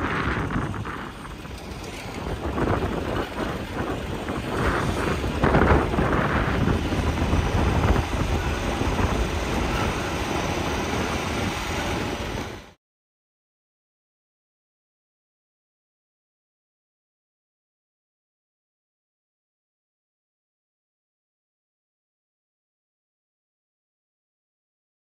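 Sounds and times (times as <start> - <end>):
car driving on dirt track: 0.0 - 12.8
engine and tyre rumble: 0.0 - 12.8
wind buffeting microphone: 0.0 - 12.8.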